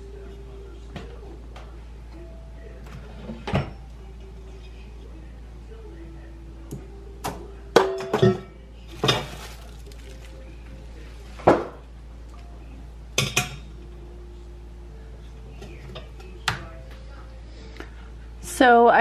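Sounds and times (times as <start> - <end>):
metal kitchenware clanking: 7.8 - 10.0.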